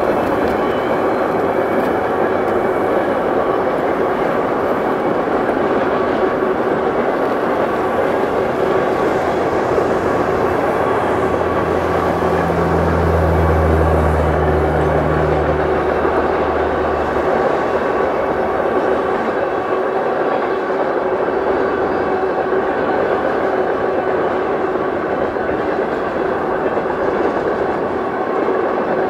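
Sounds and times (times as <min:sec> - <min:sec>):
deep locomotive drone: 0:00.0 - 0:29.0
freight train rumbling: 0:00.0 - 0:29.0.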